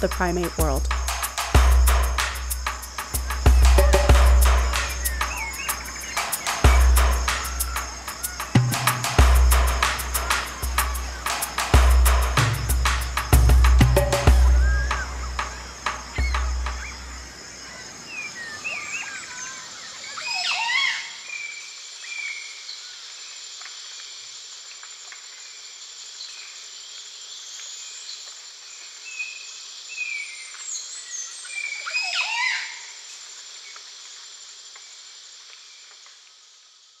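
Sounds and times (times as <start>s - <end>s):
high-pitched insect drone: 0.0s - 22.4s
swooping bird calls: 0.9s - 22.6s, 29.1s - 33.1s.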